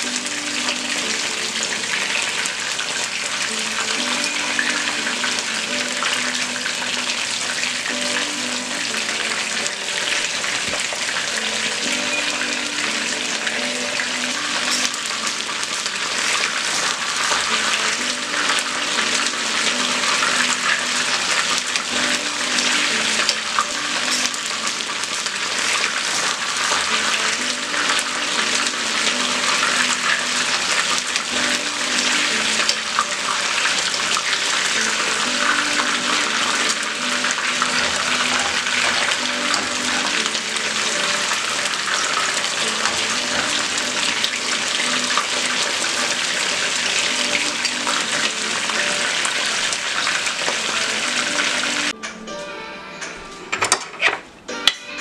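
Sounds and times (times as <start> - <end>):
chicken sizzling in oil: 0.0 - 52.0.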